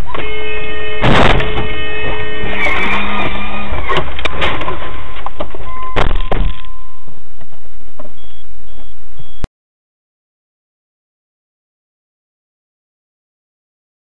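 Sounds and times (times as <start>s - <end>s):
car cabin noise: 0.0s - 9.3s.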